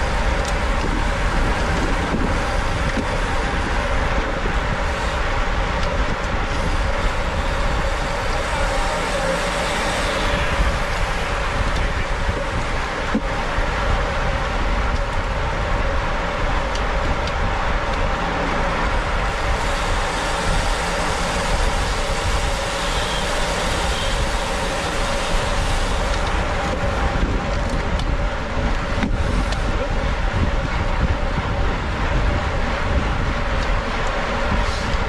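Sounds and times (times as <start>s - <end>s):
bicycle tyre and drivetrain noise: 0.0s - 35.0s
wind rumble on microphone: 0.0s - 35.0s.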